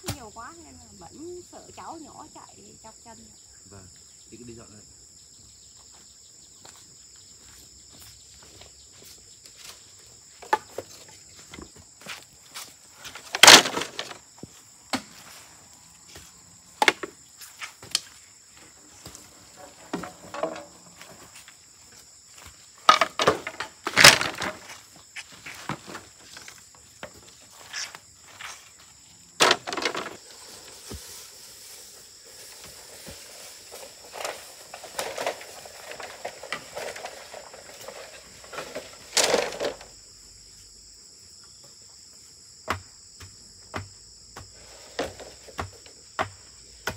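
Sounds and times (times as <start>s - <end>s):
insects droning: 0.0s - 46.9s
rubbish clattering and scraping: 12.6s - 14.4s, 16.8s - 28.8s, 29.4s - 40.0s, 44.6s - 45.9s.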